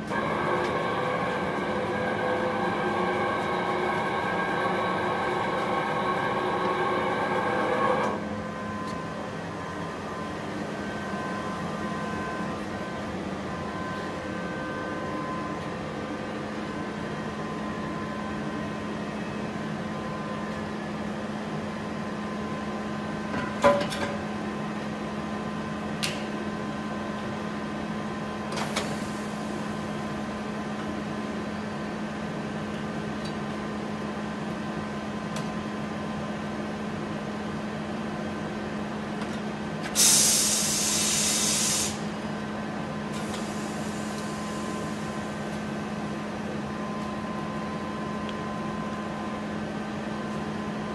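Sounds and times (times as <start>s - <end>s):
workshop machine hum: 0.0s - 26.6s
compressed air hiss: 40.0s - 42.1s.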